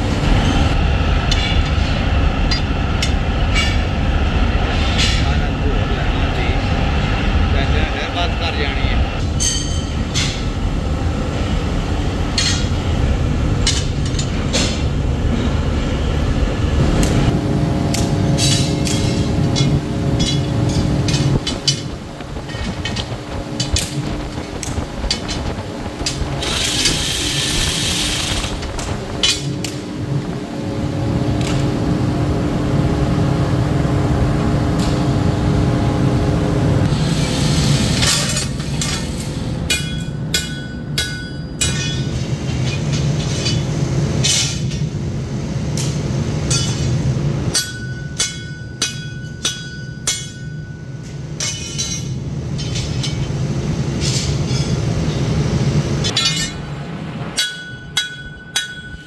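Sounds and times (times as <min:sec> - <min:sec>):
machine drone: 0:00.0 - 0:49.4
hammer striking steel: 0:09.4 - 0:10.6, 0:12.4 - 0:12.8, 0:17.9 - 0:21.9, 0:39.7 - 0:44.8, 0:45.8 - 0:46.9, 0:47.5 - 0:53.3, 0:56.0 - 0:56.7, 0:57.3 - 0:59.0.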